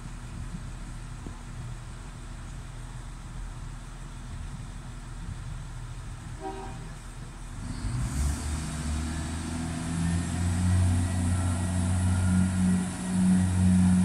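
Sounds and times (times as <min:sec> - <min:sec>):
train diesel engines droning: 0:04.9 - 0:14.0.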